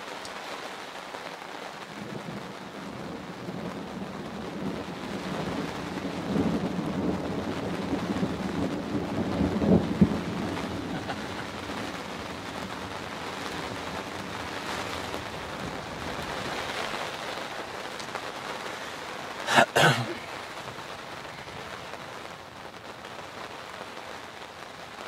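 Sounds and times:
rain on a tent: 0.0s - 25.0s
thunder rolling: 2.0s - 17.2s.

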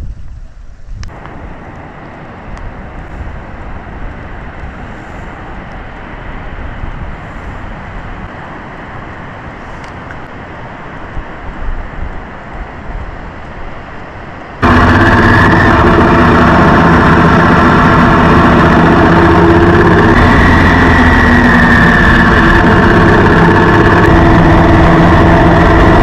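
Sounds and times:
vehicle road noise: 14.4s - 26.0s.

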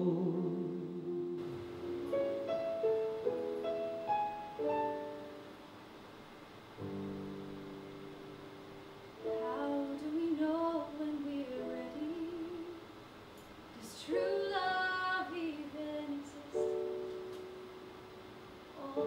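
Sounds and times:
woman singing: 0.0s - 1.1s, 9.2s - 12.8s, 13.8s - 17.0s, 18.8s - 19.0s
piano accompaniment: 0.0s - 6.0s, 6.6s - 12.9s, 14.0s - 19.0s.

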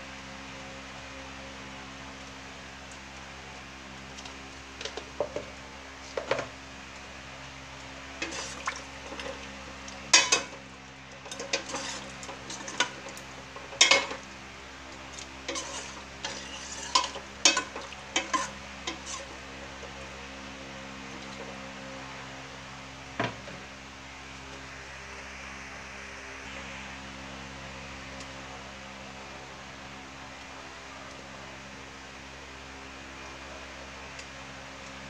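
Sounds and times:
steady low hum: 0.0s - 35.0s
spatula scraping a metal pot: 8.2s - 9.3s, 11.3s - 13.0s, 15.4s - 19.3s.

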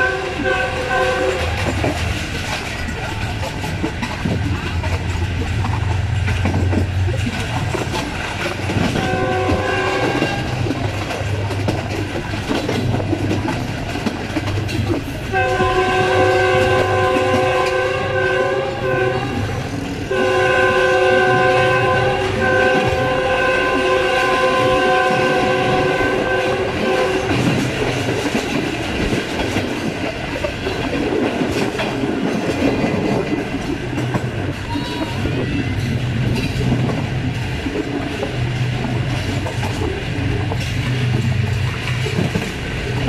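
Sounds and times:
locomotive multi-tone horn: 0.0s - 2.0s, 8.7s - 11.1s, 15.2s - 27.8s
train wheels clattering over rail joints: 0.0s - 18.0s, 21.5s - 43.0s.

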